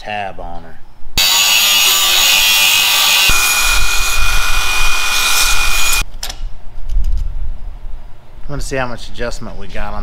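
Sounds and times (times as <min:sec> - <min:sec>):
angle grinder cutting metal: 0:01.2 - 0:06.0.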